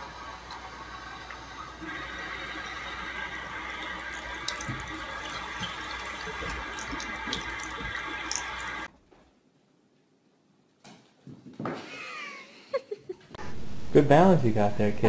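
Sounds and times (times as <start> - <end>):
faucet water running into sink: 0.0 - 8.9.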